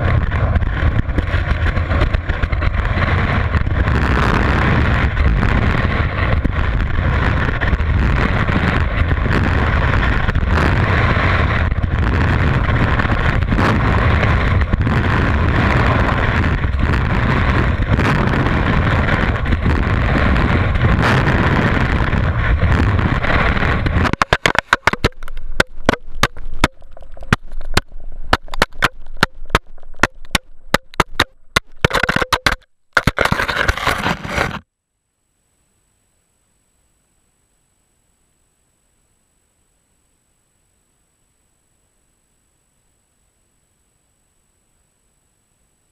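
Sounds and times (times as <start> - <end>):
rush of wind and snow: 0.0 - 30.0, 33.0 - 34.6
sharp clicks and scrapes: 0.0 - 34.6.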